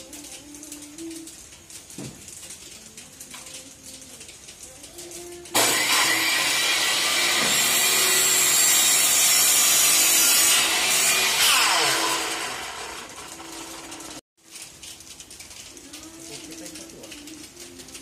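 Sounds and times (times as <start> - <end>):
miter saw cutting wood: 5.6 - 14.2.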